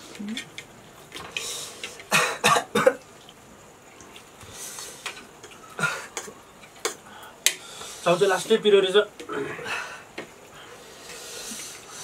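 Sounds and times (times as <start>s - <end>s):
man coughing: 2.1s - 3.0s, 5.8s - 6.2s.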